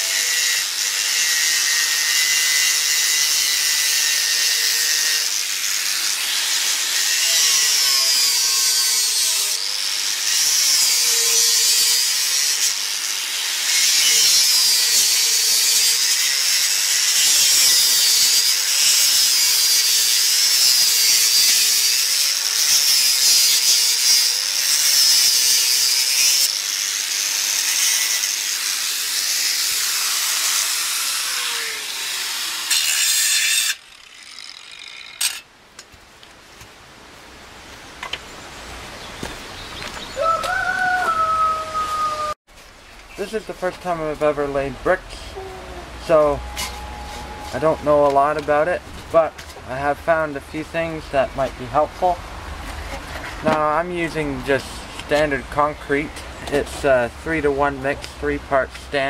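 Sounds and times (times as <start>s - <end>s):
angle grinder cutting brick: 0.0s - 35.5s.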